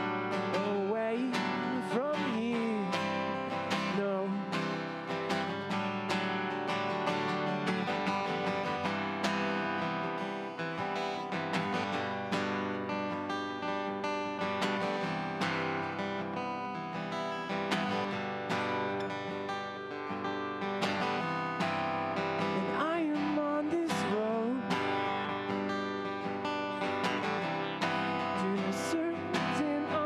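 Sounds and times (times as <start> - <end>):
person singing: 0.0 - 5.3, 22.3 - 26.2, 26.8 - 30.0
acoustic guitar strumming: 0.0 - 30.0.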